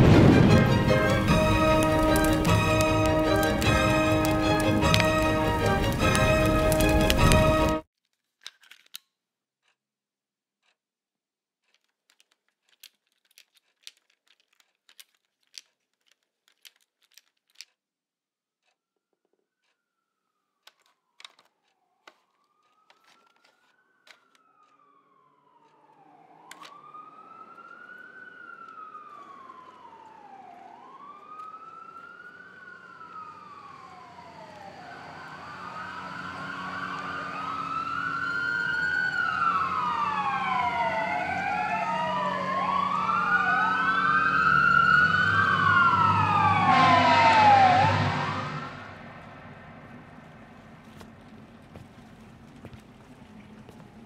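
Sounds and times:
low rumble: 0.0 - 7.8, 33.6 - 54.0
emergency sirens wailing: 0.0 - 7.9, 22.1 - 54.0.

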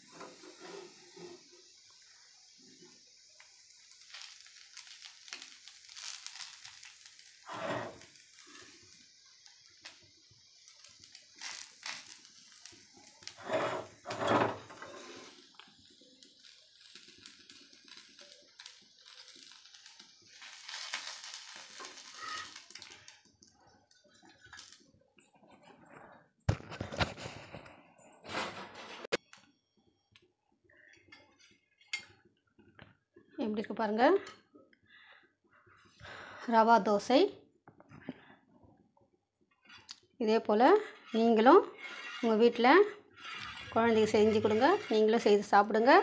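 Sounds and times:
spatula scraping a griddle: 0.0 - 1.7, 4.0 - 8.9, 13.2 - 15.6, 20.3 - 23.0, 40.8 - 46.0
dosa sizzling on a griddle: 0.0 - 27.4, 39.4 - 46.0.

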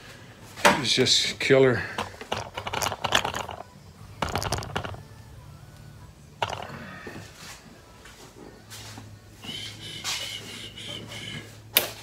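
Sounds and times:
small hard objects rattling: 2.0 - 5.0, 6.4 - 6.7.

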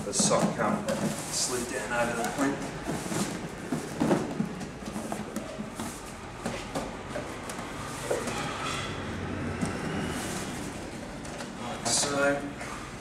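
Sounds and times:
fabric cover rustling: 1.1 - 6.7.

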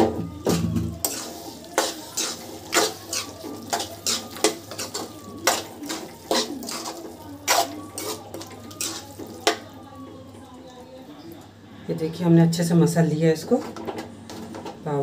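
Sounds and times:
metal utensil scraping metal pan: 0.5 - 9.6.

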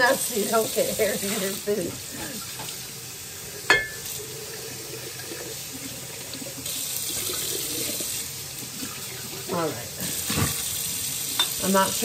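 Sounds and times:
tap running into sink: 2.5 - 2.8.

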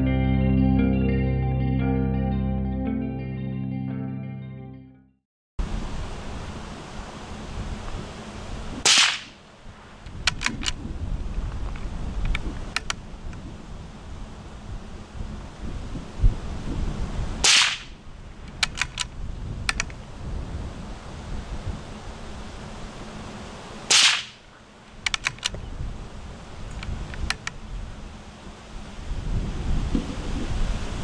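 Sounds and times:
wind rumble on microphone: 5.6 - 24.0, 24.6 - 31.0
rifle shots: 8.8 - 9.4, 17.4 - 18.0, 23.9 - 24.4
quick sharp clicks: 8.9 - 9.4, 10.1 - 10.8, 17.4 - 17.9, 18.5 - 19.1, 23.9 - 24.4, 25.0 - 25.6.

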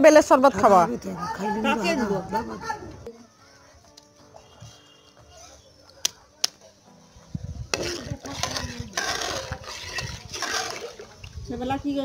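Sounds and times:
metal ladle scraping a bowl: 7.7 - 11.3
liquid sloshing: 7.8 - 11.4.

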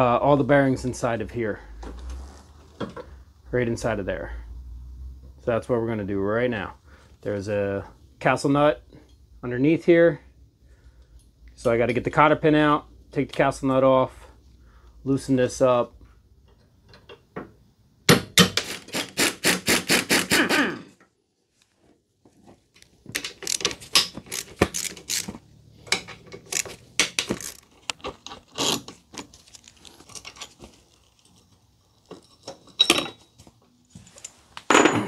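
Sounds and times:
tools clinking and scraping: 22.8 - 35.0.

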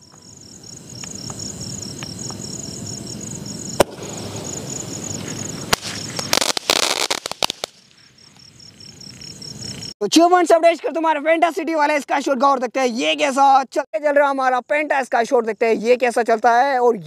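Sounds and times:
crickets chirping: 0.0 - 17.0
firework hissing: 0.7 - 8.4
crackling firework pops: 1.0 - 1.4, 3.7 - 8.5
firework bang: 3.6 - 7.8.

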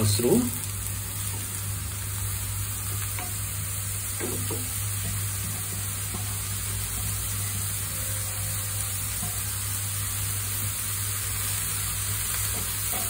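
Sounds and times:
mushrooms sizzling in frying pan: 0.0 - 13.0.

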